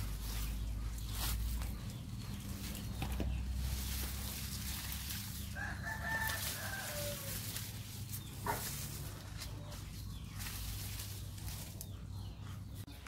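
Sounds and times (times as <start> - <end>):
rooster crowing: 5.5 - 7.4.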